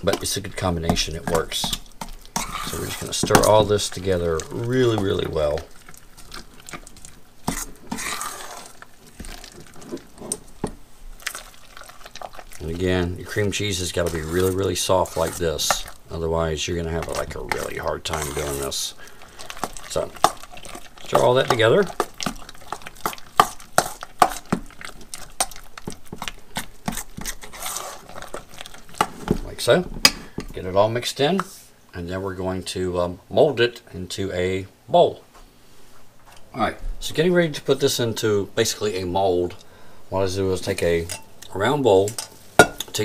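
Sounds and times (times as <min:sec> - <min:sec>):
spoon stirring in metal bowl: 0:00.0 - 0:30.6, 0:40.7 - 0:43.0.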